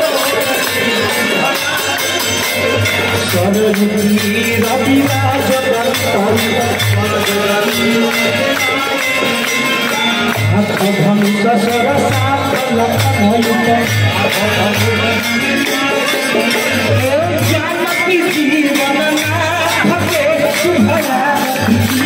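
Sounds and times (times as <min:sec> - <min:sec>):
group singing: 0:00.0 - 0:22.0
jingling percussion: 0:00.0 - 0:22.0
rhythmic hand-clapping: 0:00.0 - 0:22.0.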